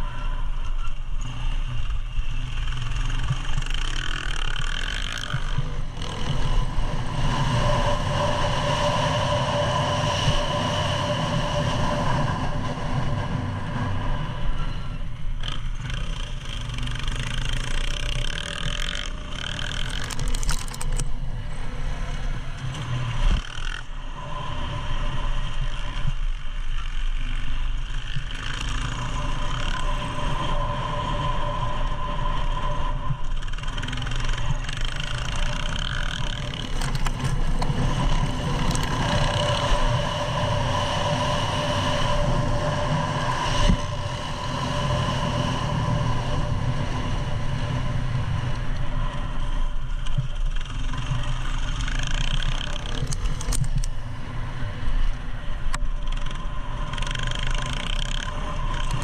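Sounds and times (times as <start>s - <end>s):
dirt bike engine: 0.0s - 59.0s.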